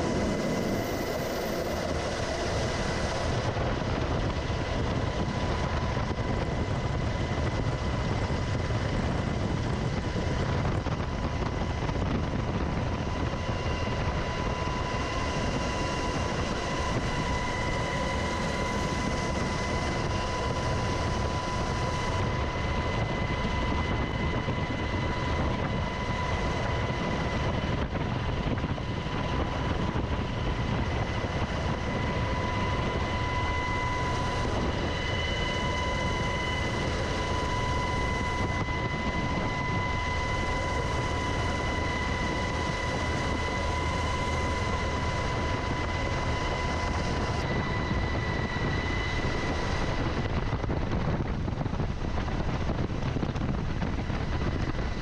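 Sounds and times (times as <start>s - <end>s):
high whine: 0.0s - 7.9s
helicopter engine and rotor noise: 0.0s - 55.0s.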